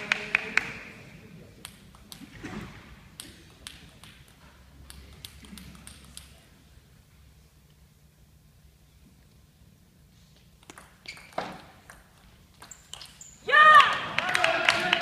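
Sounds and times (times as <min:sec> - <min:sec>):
faint murmur in hall: 0:00.0 - 0:08.0
table tennis ball bouncing: 0:10.6 - 0:13.2.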